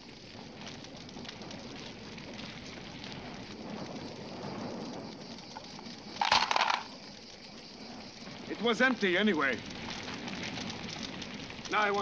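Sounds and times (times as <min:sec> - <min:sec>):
crackle of burning brush: 0:00.0 - 0:12.0
metal can clattering onto rock: 0:06.2 - 0:06.9.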